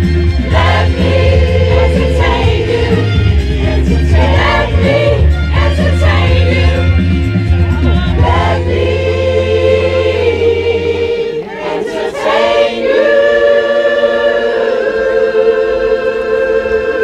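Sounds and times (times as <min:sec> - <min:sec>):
mixed choir singing: 0:00.3 - 0:17.0.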